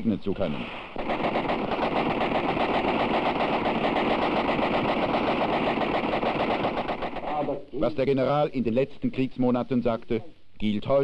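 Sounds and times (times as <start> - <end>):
automatic gunfire: 1.0 - 7.6.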